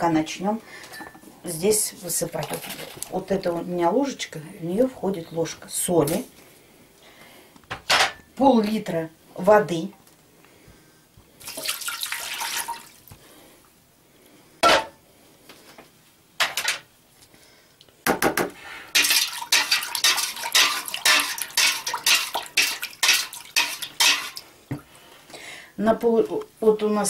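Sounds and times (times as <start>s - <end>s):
water pouring into metal pot: 11.4s - 13.0s, 18.9s - 24.5s
metal spoon clinking and scraping pot: 19.0s - 24.5s.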